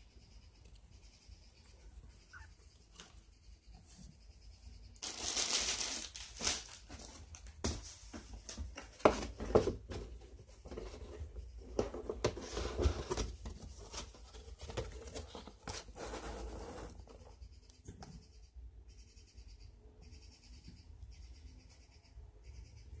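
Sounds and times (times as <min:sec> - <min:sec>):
cardboard box rustling: 0:05.1 - 0:17.0.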